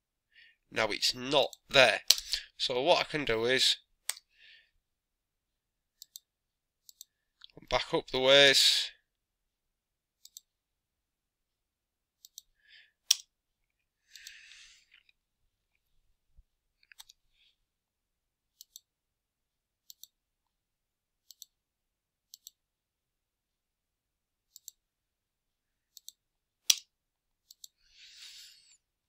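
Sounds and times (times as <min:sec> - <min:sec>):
computer mouse buttons clicking: 0:06.0 - 0:07.1, 0:10.2 - 0:10.5, 0:12.2 - 0:12.5, 0:18.6 - 0:18.9, 0:19.8 - 0:20.2, 0:21.2 - 0:21.6, 0:22.3 - 0:22.6, 0:24.5 - 0:24.8, 0:25.9 - 0:27.8.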